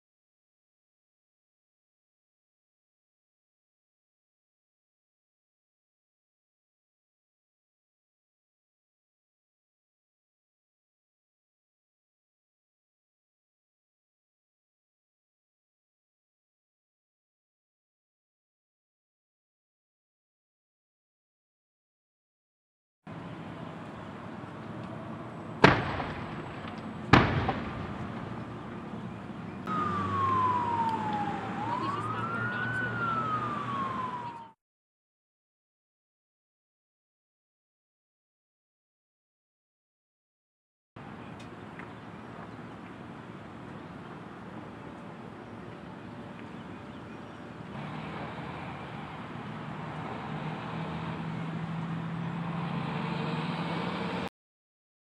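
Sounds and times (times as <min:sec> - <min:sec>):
vehicle engine humming: 0:23.1 - 0:34.5, 0:41.0 - 0:54.3
road noise: 0:23.1 - 0:34.6, 0:41.0 - 0:54.3
loud explosion bangs: 0:25.6 - 0:28.5
emergency vehicle siren wailing: 0:27.5 - 0:34.6.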